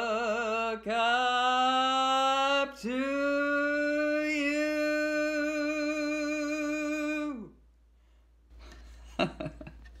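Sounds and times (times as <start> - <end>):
woman laughing breathily: 8.6 - 10.0.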